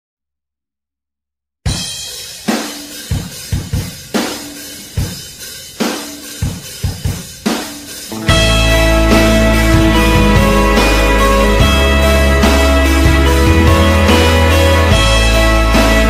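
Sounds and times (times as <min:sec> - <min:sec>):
rock drum kit hits: 0:01.7 - 0:16.0
rock band with guitar and bass: 0:08.1 - 0:16.0.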